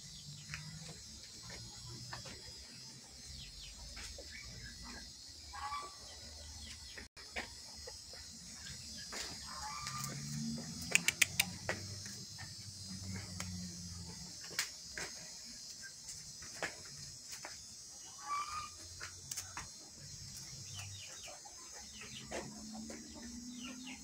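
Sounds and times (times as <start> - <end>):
insects chirring: 0.0 - 24.0
sharp clicks: 10.8 - 11.8.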